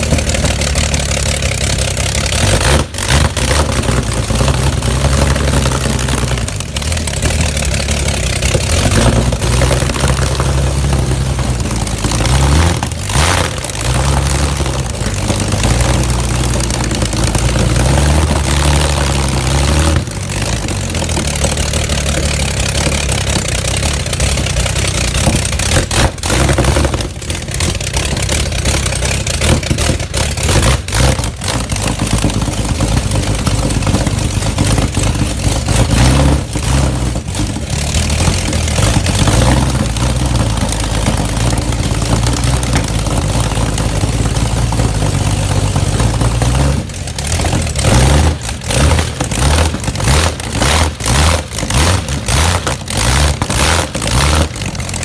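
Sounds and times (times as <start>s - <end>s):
loud car engine revving: 0.0s - 55.0s.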